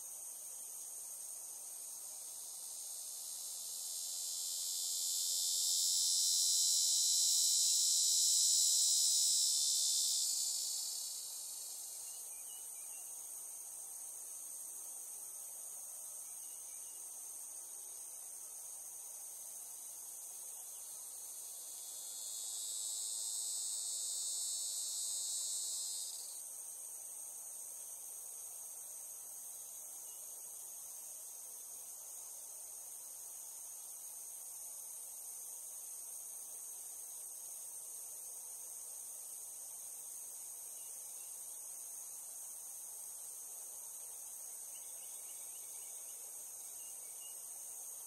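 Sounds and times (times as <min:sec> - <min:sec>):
cicadas droning: 0:00.0 - 0:48.0
high-pitched insect chorus: 0:00.0 - 0:48.0
cicada buzzing: 0:02.7 - 0:11.8, 0:21.4 - 0:26.4.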